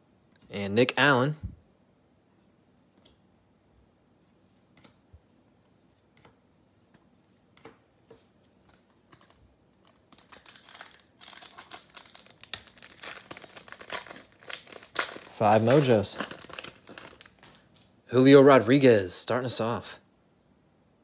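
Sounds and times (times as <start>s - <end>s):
plastic wrapper crinkling: 8.7s - 18.0s.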